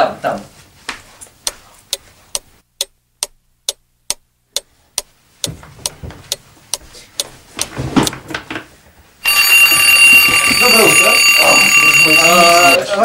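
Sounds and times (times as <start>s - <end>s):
clock ticking: 1.4s - 8.2s.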